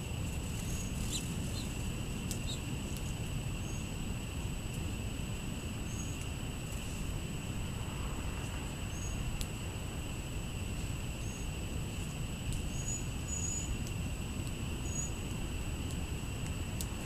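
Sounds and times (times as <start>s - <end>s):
low outdoor rumble: 0.0s - 17.0s
high-pitched insect drone: 0.6s - 2.8s.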